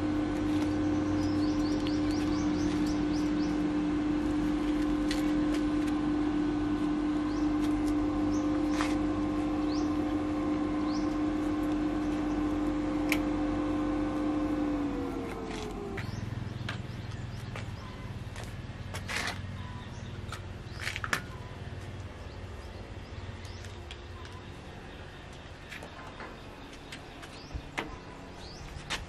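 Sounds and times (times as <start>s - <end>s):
welding machine fan humming: 0.0s - 29.0s
bird chirps: 0.5s - 3.7s, 9.6s - 10.0s, 16.0s - 18.5s, 19.3s - 28.9s.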